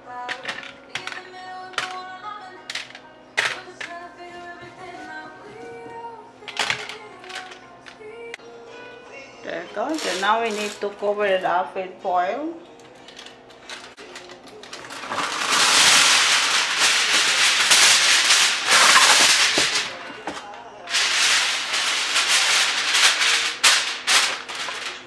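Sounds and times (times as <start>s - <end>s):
aluminium foil crinkling: 9.8s - 11.5s, 12.8s - 25.0s.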